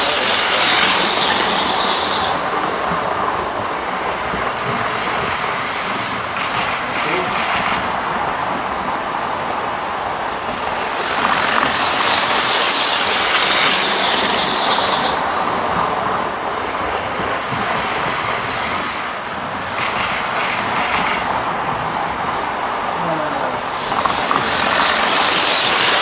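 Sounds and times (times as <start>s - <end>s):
model train rattling on rails: 0.0s - 22.8s, 23.6s - 26.0s.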